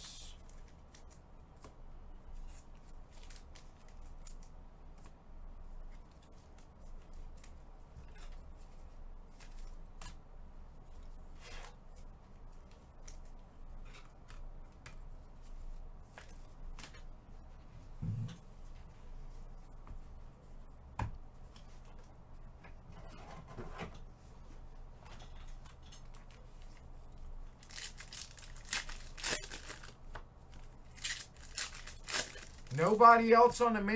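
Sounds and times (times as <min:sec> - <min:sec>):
low steady hum: 0:00.0 - 0:33.9.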